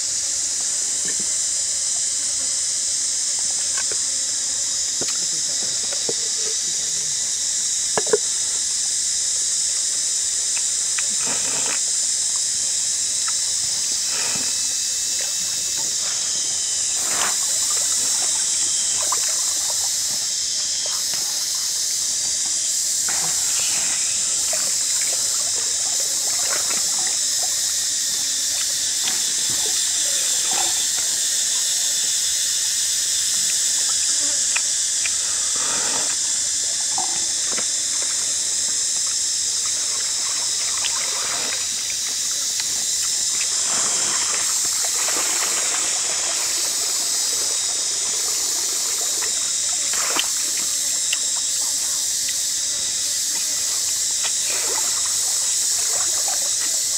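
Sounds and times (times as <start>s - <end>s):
stream trickling: 1.1s - 8.4s, 12.1s - 31.7s, 38.6s - 56.9s.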